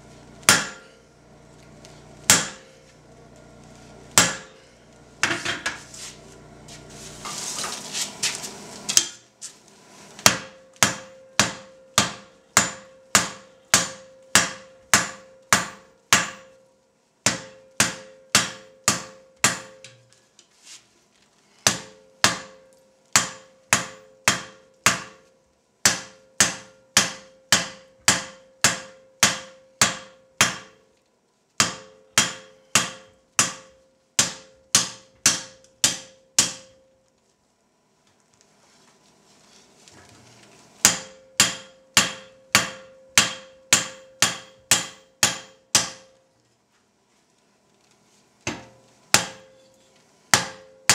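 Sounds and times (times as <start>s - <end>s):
hammer striking steel on anvil: 0.4s - 1.0s, 2.3s - 2.7s, 4.2s - 4.6s, 10.2s - 16.6s, 17.2s - 20.1s, 21.6s - 30.9s, 31.6s - 36.9s, 40.8s - 46.2s, 48.5s - 49.7s, 50.3s - 50.9s
noisy rustle: 5.8s - 10.2s, 38.4s - 40.8s.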